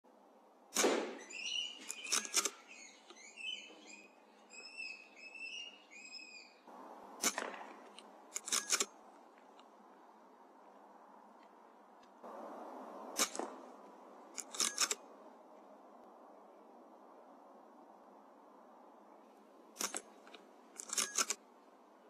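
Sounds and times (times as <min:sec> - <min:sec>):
air rifle shot: 0:00.7 - 0:02.6, 0:07.2 - 0:08.0, 0:13.1 - 0:13.7
rifle reloading clicks: 0:01.8 - 0:02.6, 0:07.2 - 0:09.0, 0:14.3 - 0:15.0, 0:19.8 - 0:21.4.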